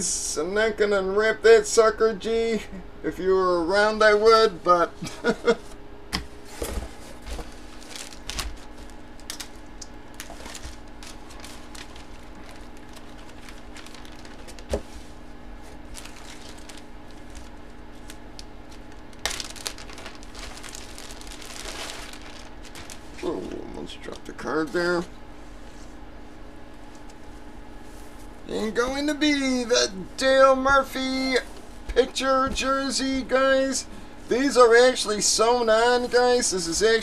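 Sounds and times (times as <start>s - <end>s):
rustling: 6.4s - 24.2s.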